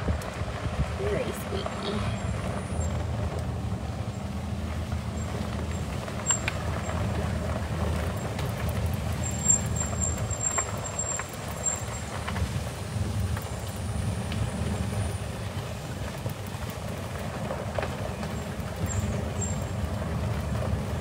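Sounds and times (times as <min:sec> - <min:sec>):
vehicle rumbling on dirt road: 0:00.0 - 0:21.0
vehicle clicks and squeaks: 0:05.2 - 0:07.2, 0:07.9 - 0:12.6, 0:17.8 - 0:20.7.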